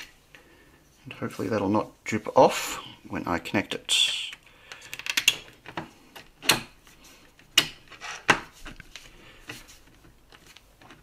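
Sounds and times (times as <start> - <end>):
plastic pieces clicking: 4.3 - 6.3.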